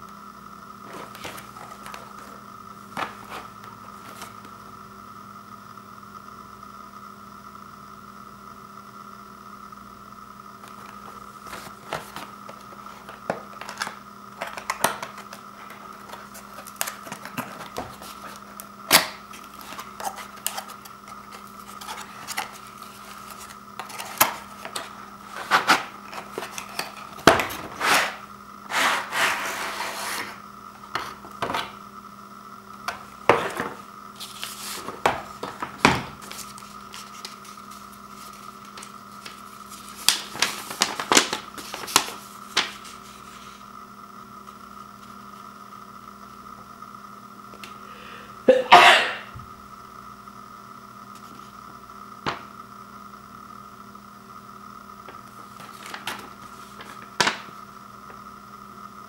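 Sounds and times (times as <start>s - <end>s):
faint steady hum: 0.0s - 59.0s
paper rustling: 0.9s - 4.4s, 10.6s - 31.7s, 33.0s - 43.6s, 55.4s - 57.5s
sliding scrape from box: 27.7s - 30.4s.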